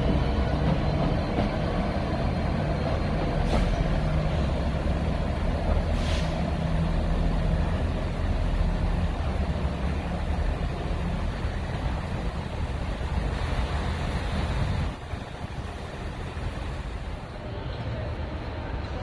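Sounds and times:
diesel locomotive engine running: 0.0 - 17.6
short hisses: 5.9 - 6.5.

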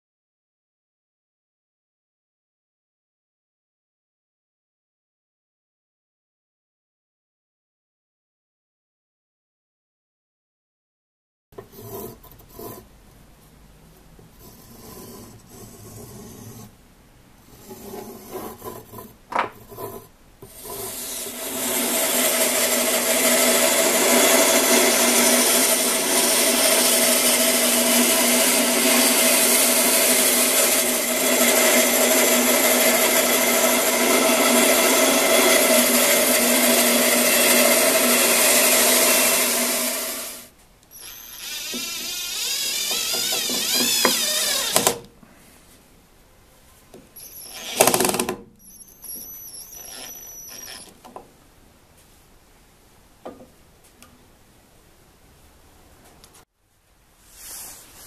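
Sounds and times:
light scratching on a board: 11.6 - 12.9, 14.2 - 16.8, 17.4 - 21.3
bandsaw cutting wood: 20.5 - 45.1, 47.2 - 51.0
cordless drill running: 40.9 - 45.1, 47.2 - 50.9.

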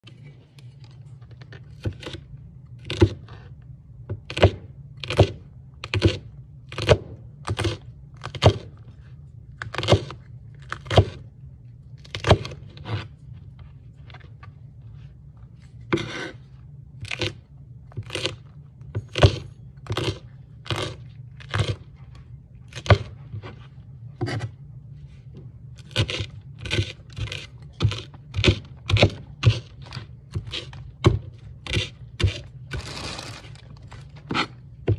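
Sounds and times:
knife chopping peppers on board: 2.8 - 3.5, 4.1 - 8.8, 9.6 - 11.2, 12.1 - 13.1, 15.9 - 16.3, 17.0 - 18.4, 19.0 - 21.9, 22.7 - 23.6, 25.8 - 33.0, 34.2 - 34.9.

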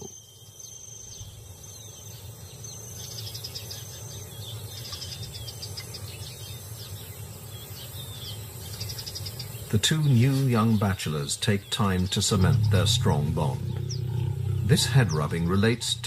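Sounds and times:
chirping bird calls: 0.0 - 16.0
insects trilling: 0.0 - 16.0
low steady rumble: 12.2 - 16.0.

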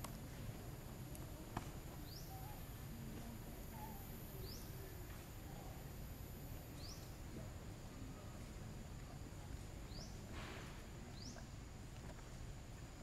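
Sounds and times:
faint outdoor rumble: 0.0 - 13.0
bird chirping: 1.9 - 2.9, 3.7 - 5.2, 6.7 - 7.2, 9.8 - 11.6.

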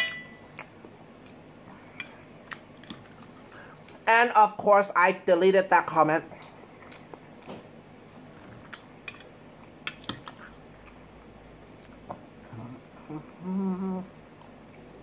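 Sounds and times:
man chewing: 0.4 - 4.0, 6.3 - 15.0
man humming: 12.5 - 14.2.

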